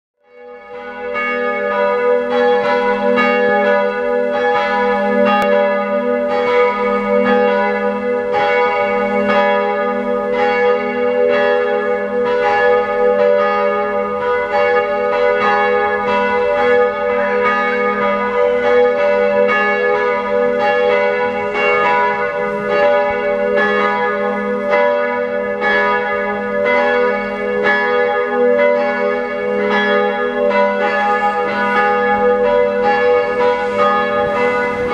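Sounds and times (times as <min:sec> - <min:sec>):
church bells ringing in a peal: 0:00.2 - 0:34.9.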